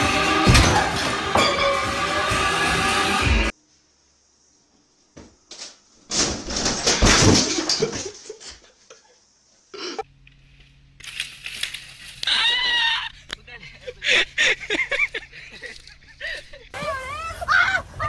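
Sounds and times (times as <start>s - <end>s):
man falling onto hard floor: 6.1s - 8.0s.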